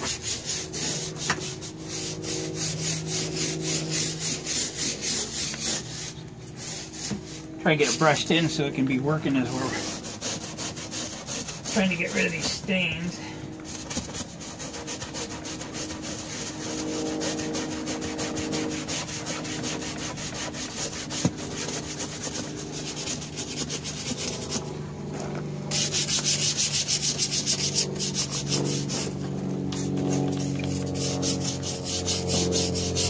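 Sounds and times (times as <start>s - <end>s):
stiff brush scrubbing panel: 0.0s - 33.0s.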